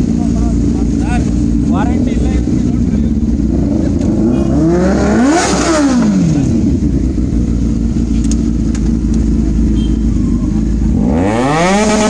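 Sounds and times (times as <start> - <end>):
motorcycle engines idling: 0.0 - 12.0
motorcycle throttle rev: 0.0 - 12.0.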